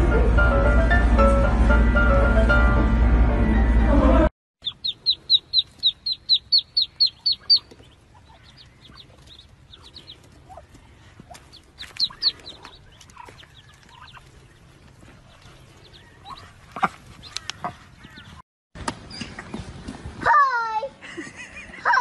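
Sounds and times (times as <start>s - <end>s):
ducklings peeping: 4.6s - 18.4s.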